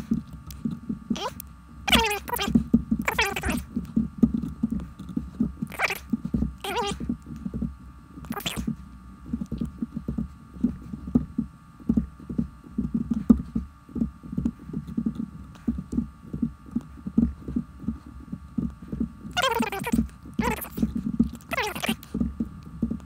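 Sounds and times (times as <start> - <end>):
rapid low patter: 0.0 - 23.0
sped up squeaky voice: 1.1 - 2.5, 3.1 - 3.6, 5.7 - 6.0, 6.6 - 7.0, 8.3 - 8.7, 19.3 - 22.0.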